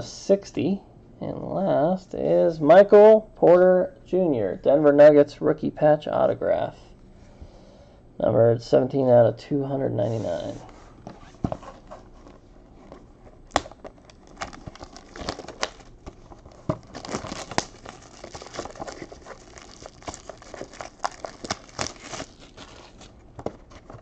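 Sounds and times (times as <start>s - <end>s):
plastic wrap crinkling and tearing: 13.4s - 24.0s.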